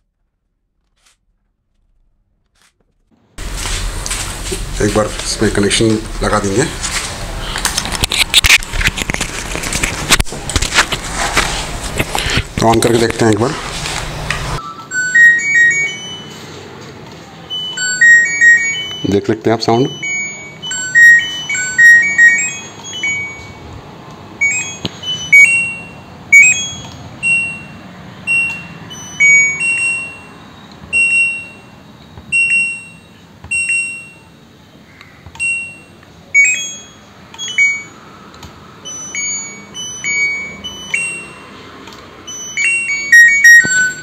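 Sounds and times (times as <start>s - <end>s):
control panel beeping: 14.6s - 16.5s, 17.5s - 23.7s, 24.4s - 34.2s, 35.4s - 38.0s, 38.8s - 44.0s.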